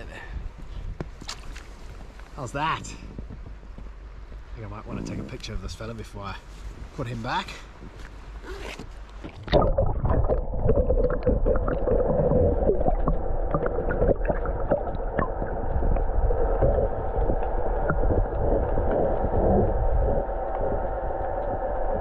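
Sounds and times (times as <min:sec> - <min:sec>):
underwater low rumble: 0:00.4 - 0:07.0, 0:09.1 - 0:22.0
underwater clicks: 0:09.2 - 0:22.0
water gurgling: 0:09.3 - 0:22.0.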